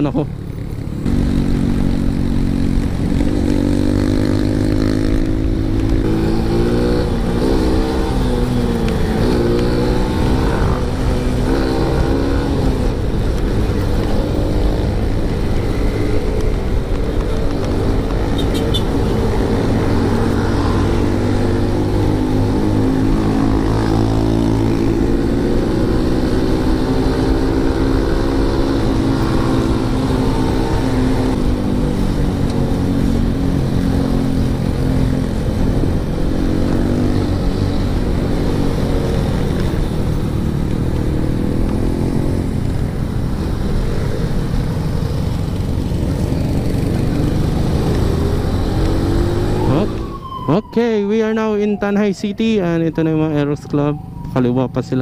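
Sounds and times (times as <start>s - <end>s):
motorcycle engine accelerating: 0.0s - 55.0s.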